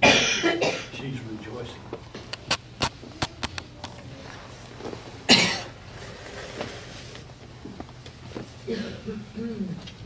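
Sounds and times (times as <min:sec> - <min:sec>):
person coughing: 0:00.0 - 0:01.0, 0:05.3 - 0:05.7, 0:08.7 - 0:09.6.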